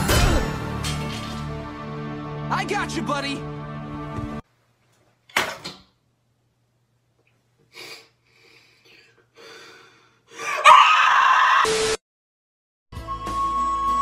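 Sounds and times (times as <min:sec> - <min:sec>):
person gasping: 0:07.7 - 0:10.7.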